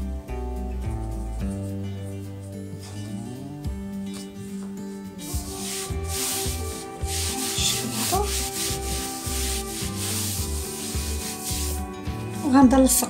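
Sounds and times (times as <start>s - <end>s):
palms rubbing cloth: 4.2s - 12.4s.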